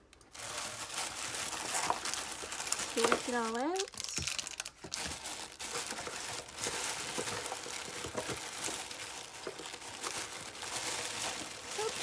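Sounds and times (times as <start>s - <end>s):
tissue paper rustling: 0.3s - 12.0s
items knocking and clicking: 2.8s - 10.3s.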